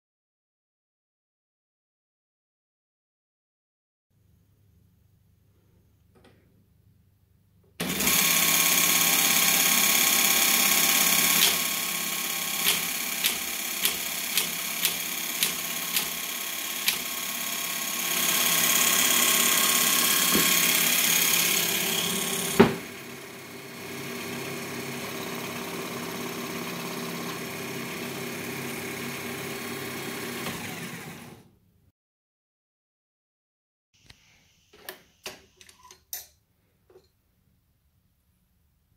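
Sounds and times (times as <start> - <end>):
teletype mechanical whir: 7.8 - 22.6, 23.8 - 31.4
teletype punching clacks: 12.6 - 16.2.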